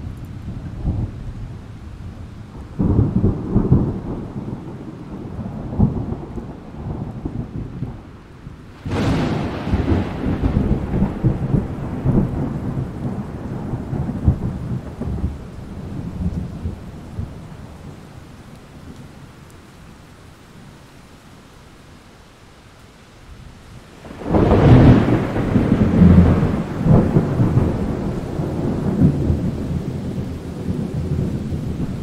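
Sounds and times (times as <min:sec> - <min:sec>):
thunder rumbling: 0:00.0 - 0:19.1, 0:24.0 - 0:32.0
rain falling: 0:00.0 - 0:32.0
sharp thunder crack: 0:08.8 - 0:16.8, 0:24.1 - 0:29.9.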